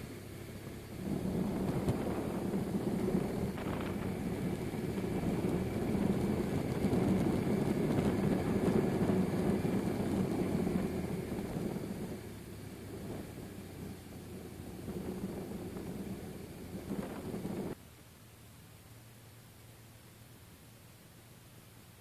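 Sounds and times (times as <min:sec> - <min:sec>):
motorcycle engine running: 0:00.0 - 0:17.8
wind rush on microphone: 0:00.6 - 0:17.8.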